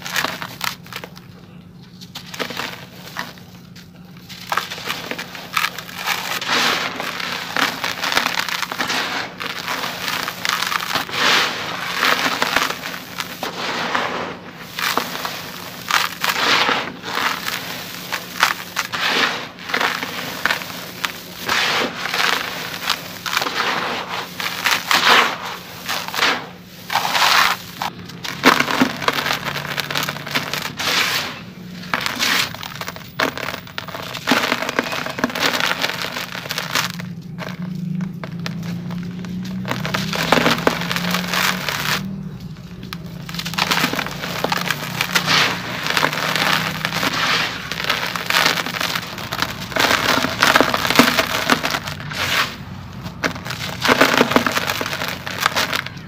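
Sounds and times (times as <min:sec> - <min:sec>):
gritty crunching of cement chunks: 0:00.0 - 0:56.0
powder trickling: 0:00.0 - 0:56.0.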